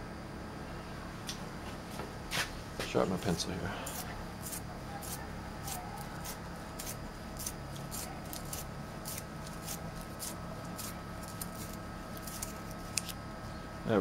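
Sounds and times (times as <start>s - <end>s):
pencil sharpener scraping wood: 3.9s - 13.1s.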